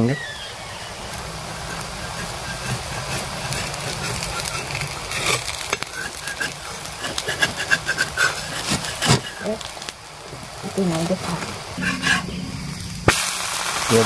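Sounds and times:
flatbread sizzling in oil: 0:00.0 - 0:14.0.

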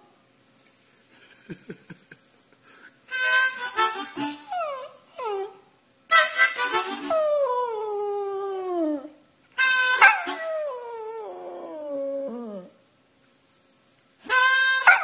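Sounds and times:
harmonica playing blues chords: 0:03.1 - 0:04.9, 0:06.1 - 0:07.6, 0:09.6 - 0:10.8, 0:14.2 - 0:15.0
dog howling: 0:07.1 - 0:09.2, 0:10.0 - 0:12.8.

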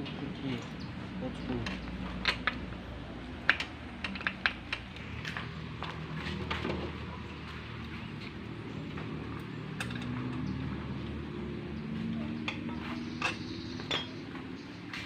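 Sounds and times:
metal hand tools clinking: 0:12.5 - 0:14.2.

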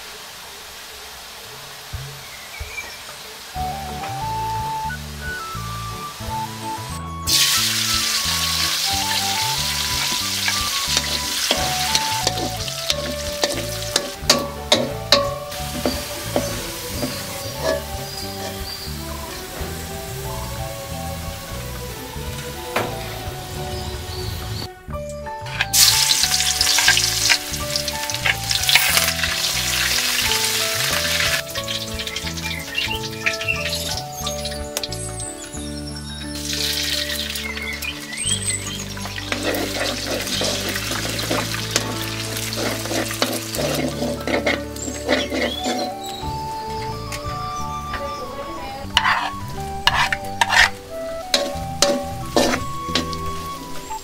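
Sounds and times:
nuts sizzling in hot oil: 0:00.0 - 0:24.7, 0:25.3 - 0:54.0
metal ladle scraping wok: 0:07.3 - 0:19.5, 0:25.4 - 0:35.0, 0:38.2 - 0:46.3, 0:47.9 - 0:54.0.

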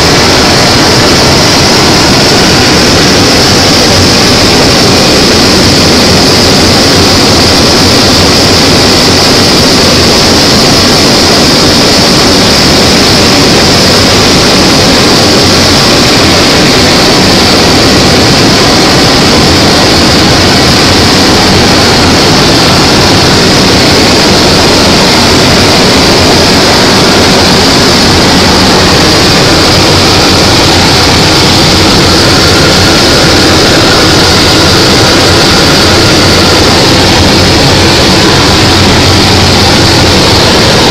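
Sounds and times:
propeller airplane engine drone: 0:00.0 - 0:40.9.

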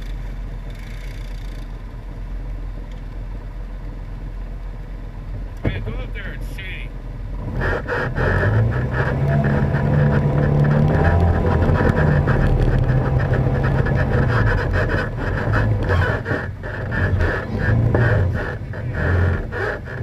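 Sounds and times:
atv engine racing: 0:07.4 - 0:20.0.

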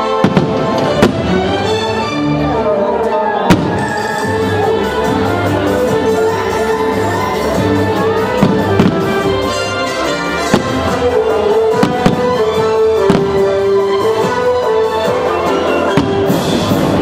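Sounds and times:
firework bangs: 0:00.0 - 0:01.6, 0:03.5 - 0:04.2, 0:08.3 - 0:13.8
soundtrack music: 0:00.0 - 0:17.0.

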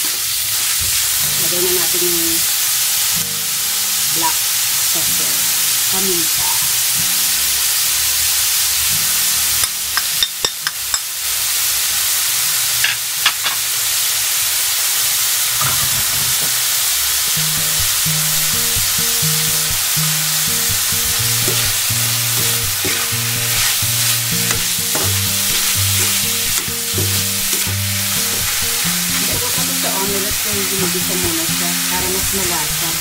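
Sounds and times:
meat sizzling in a wok: 0:00.0 - 0:33.0
background music with bass line: 0:17.4 - 0:31.4.

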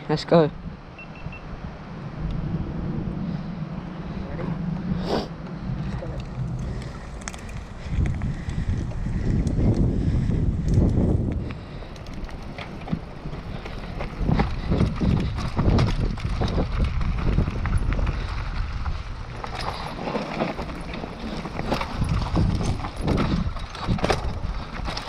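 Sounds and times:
low wind rumble: 0:00.0 - 0:25.0
bike rattling and knocking: 0:05.7 - 0:25.0
tyres crunching over gravel: 0:05.8 - 0:10.2, 0:11.1 - 0:25.0.

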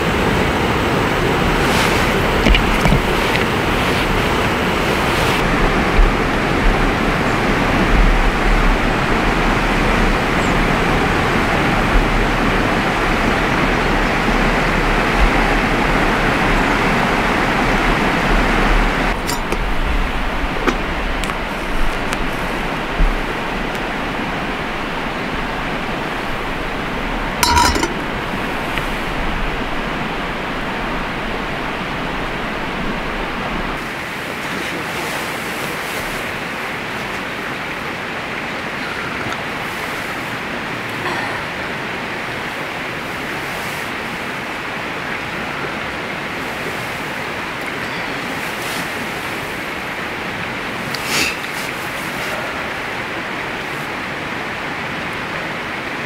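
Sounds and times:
river rushing: 0:00.0 - 0:56.0
light clink: 0:19.2 - 0:19.8, 0:27.4 - 0:28.9.

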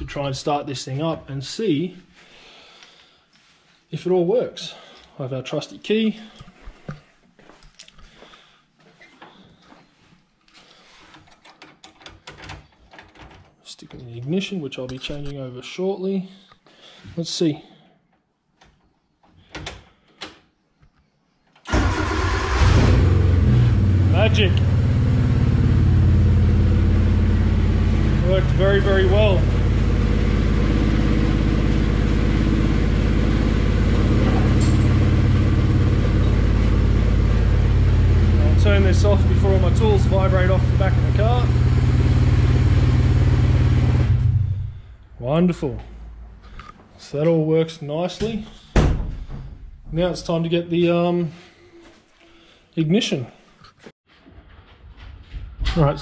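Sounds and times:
handling clicks and knocks: 0:11.1 - 0:14.1
car engine idling: 0:22.6 - 0:44.9.

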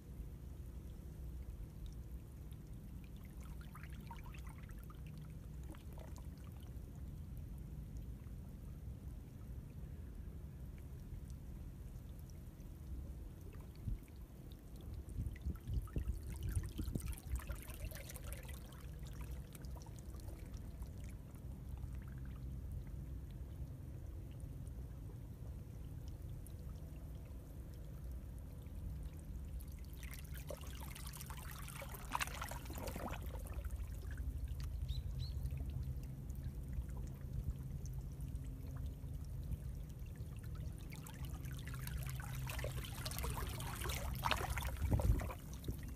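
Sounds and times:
steady low rumble: 0:04.8 - 0:17.6, 0:18.2 - 0:29.9, 0:32.6 - 0:45.9
water splashing surges: 0:40.9 - 0:45.8.

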